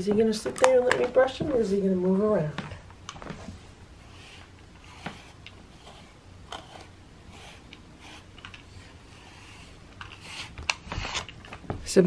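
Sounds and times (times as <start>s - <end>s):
brush swishing through cat fur: 3.4s - 6.2s.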